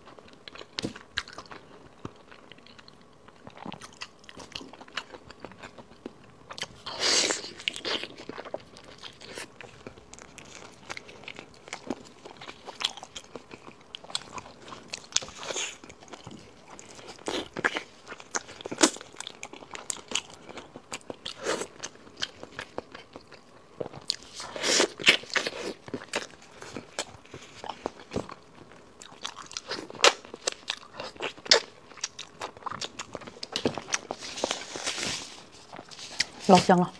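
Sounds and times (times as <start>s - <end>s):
person biting and chewing: 23.8s - 36.4s.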